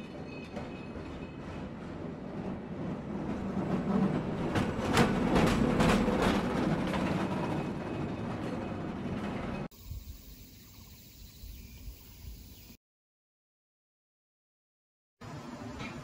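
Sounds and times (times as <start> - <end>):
cable car rolling rumble: 0.0 - 9.7
rattling clacks over wheels: 3.2 - 9.7.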